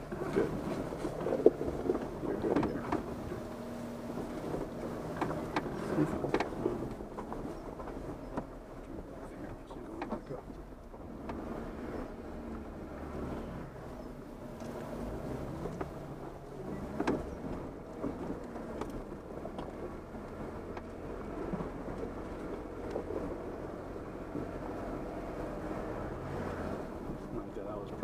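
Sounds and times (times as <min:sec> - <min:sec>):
engine and drivetrain rumble: 0:00.0 - 0:28.0
sharp knocks and clicks: 0:05.1 - 0:08.6.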